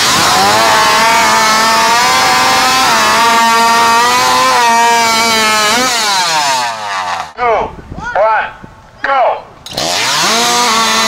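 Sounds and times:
chainsaw cutting log: 0:00.0 - 0:07.4, 0:09.6 - 0:11.0.

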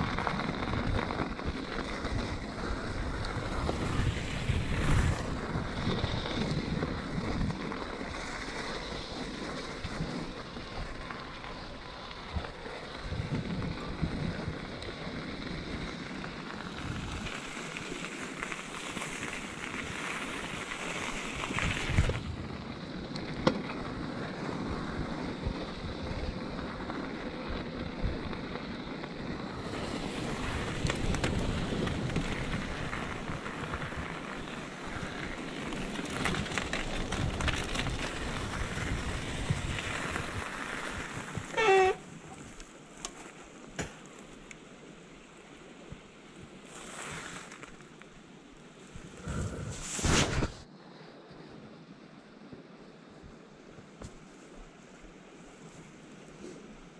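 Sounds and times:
wind on microphone: 0:00.0 - 0:08.2, 0:21.3 - 0:22.9, 0:29.2 - 0:42.3, 0:49.0 - 0:50.7
bike tyres on wet gravel: 0:00.0 - 0:50.6, 0:53.2 - 0:56.9.

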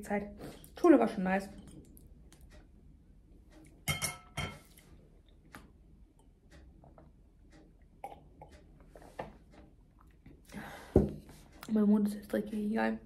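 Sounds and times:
glass clinking on table: 0:03.9 - 0:04.6.

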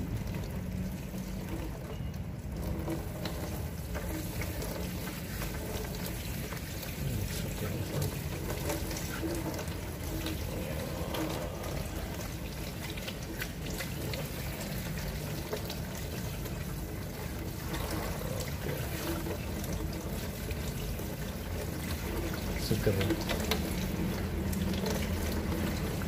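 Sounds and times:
water draining into basin: 0:00.0 - 0:26.0.

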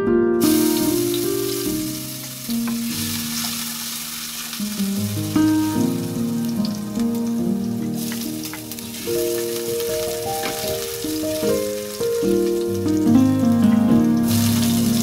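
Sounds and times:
garlic sizzling in hot oil: 0:00.4 - 0:15.0.

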